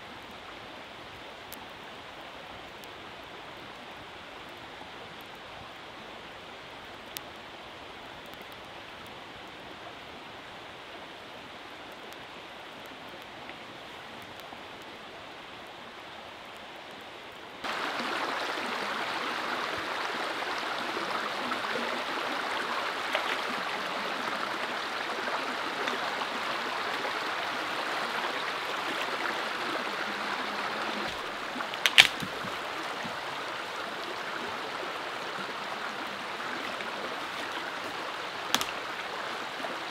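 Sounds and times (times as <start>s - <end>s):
small river flowing: 0.0s - 39.9s
dead branch snapping: 31.0s - 32.6s, 38.4s - 38.9s.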